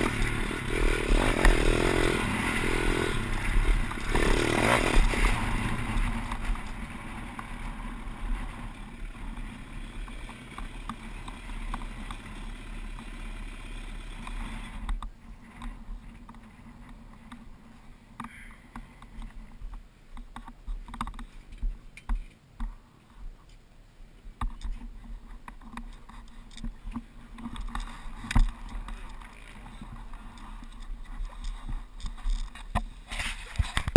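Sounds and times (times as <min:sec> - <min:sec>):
pit bike engine running: 0:00.0 - 0:14.9.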